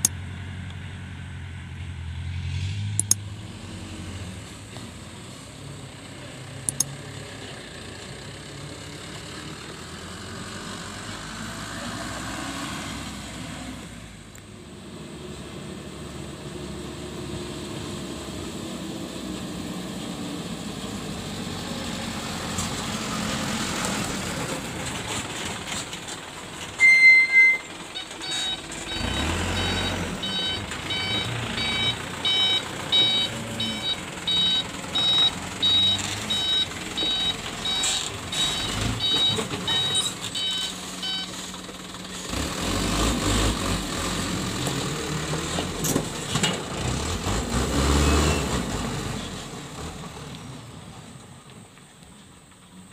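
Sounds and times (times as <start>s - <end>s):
diesel truck engine running: 3.0s - 52.9s
loud short high beep: 26.8s - 29.0s
reversing alarm beeping: 26.8s - 41.3s.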